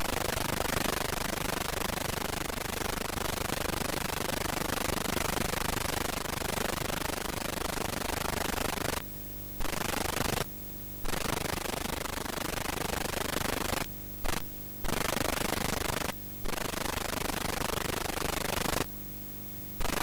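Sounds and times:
static hiss: 0:06.1 - 0:20.0.

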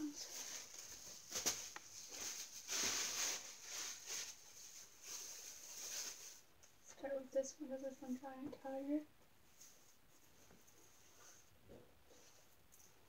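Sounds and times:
clothes rustling: 0:00.0 - 0:06.8.

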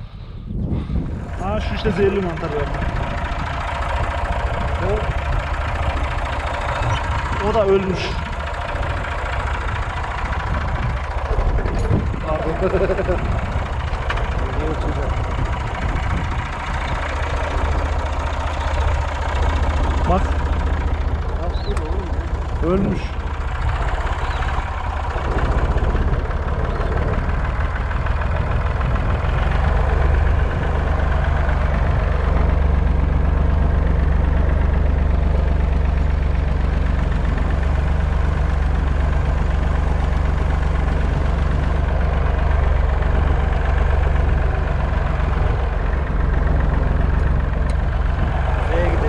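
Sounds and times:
tractor engine running: 0:00.0 - 0:49.0.

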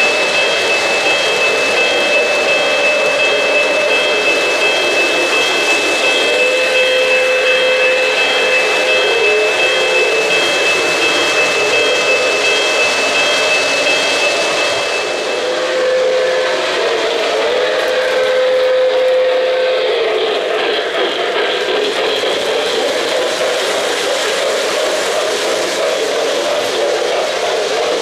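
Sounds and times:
model trains rolling rumble: 0:00.0 - 0:28.0
model steam whistle blasts: 0:15.0 - 0:20.1.

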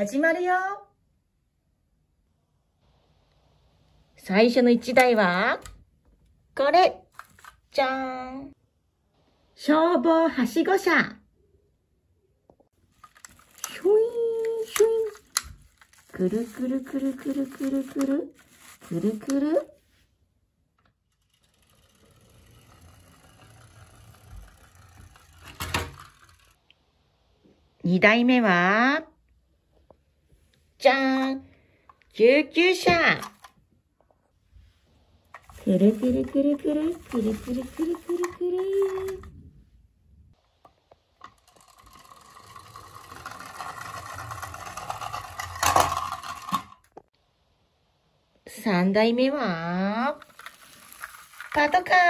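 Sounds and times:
plastic toy wheels rolling on wood: 0:12.8 - 0:19.8, 0:20.8 - 0:26.6, 0:35.3 - 0:39.4, 0:40.8 - 0:47.1, 0:50.1 - 0:52.0.

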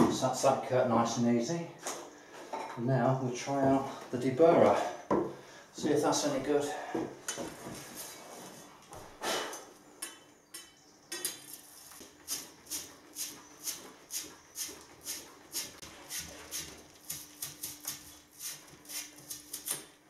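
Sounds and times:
deburring tool scraping pipe: 0:11.5 - 0:19.8.

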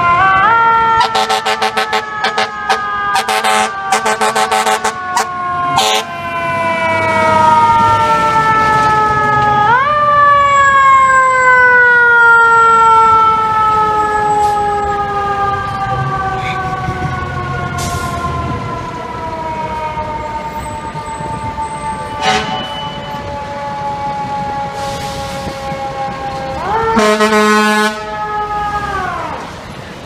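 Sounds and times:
fire engine siren wailing: 0:00.0 - 0:30.0
short sharp horn blasts: 0:22.2 - 0:23.0, 0:27.0 - 0:28.0.

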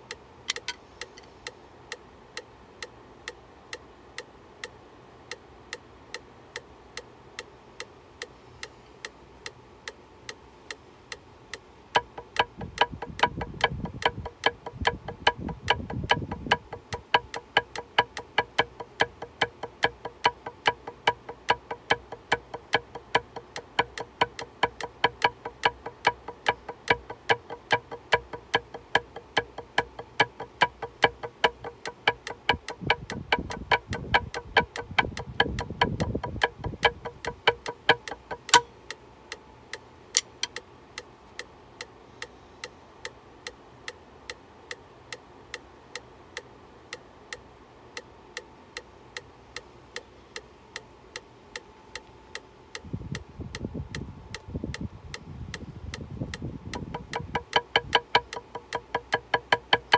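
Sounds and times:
metronome clicking: 0:00.0 - 0:59.9
sharp knock: 0:35.4 - 0:38.7.

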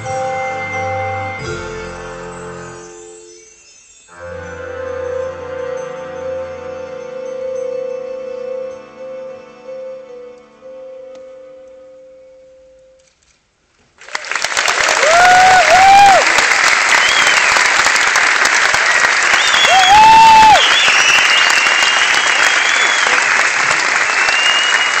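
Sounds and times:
audience applause: 0:14.0 - 0:25.0
crowd whistling: 0:14.6 - 0:25.0.

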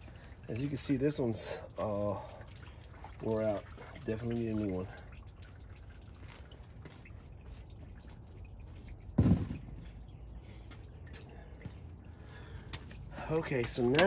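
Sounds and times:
dull thump of car parts: 0:09.2 - 0:09.9.

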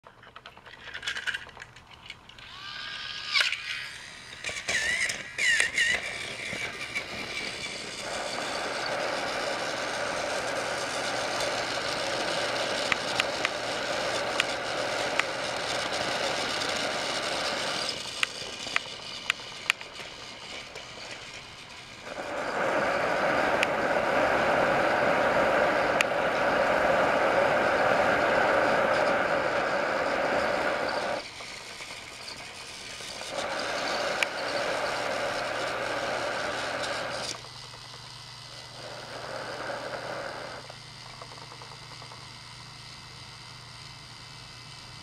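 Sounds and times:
toy train motor whirring rattle: 0:00.0 - 0:45.0
sharp clicks: 0:03.3 - 0:07.1.

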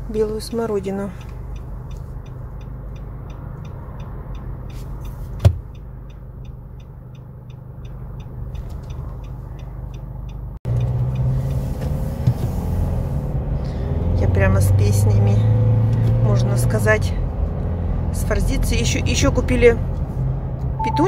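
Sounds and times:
light regular ticking: 0:00.0 - 0:11.6
car road and engine rumble: 0:00.0 - 0:21.0.

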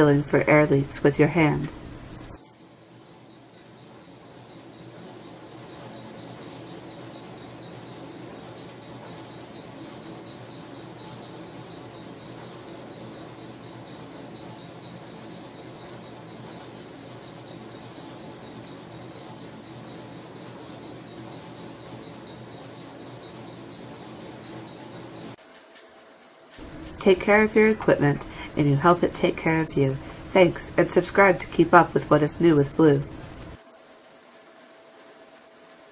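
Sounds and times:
compressed air hissing: 0:26.5 - 0:28.8.

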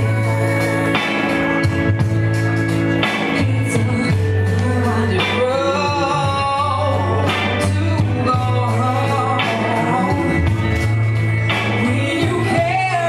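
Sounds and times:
live band music: 0:00.0 - 0:13.0
woman singing: 0:03.3 - 0:10.7, 0:11.5 - 0:13.0.

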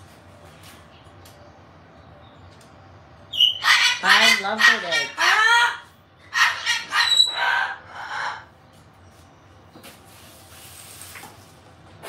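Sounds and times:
parrot chattering calls: 0:03.3 - 0:08.6.

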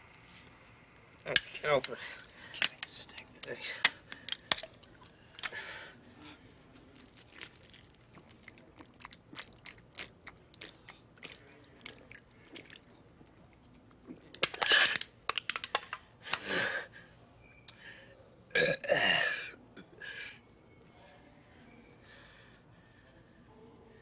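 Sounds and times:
man belching: 0:18.5 - 0:19.5.

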